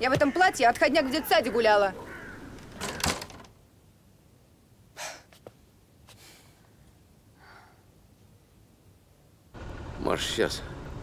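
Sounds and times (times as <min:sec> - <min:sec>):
door being pulled shut: 0:02.6 - 0:03.5
soft breath-like hiss: 0:04.9 - 0:06.8.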